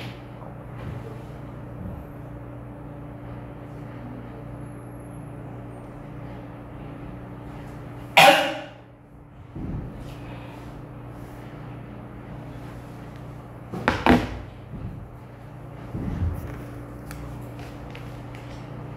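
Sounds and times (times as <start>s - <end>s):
steady low hum: 0.0s - 18.9s
loud cough: 8.2s - 8.8s.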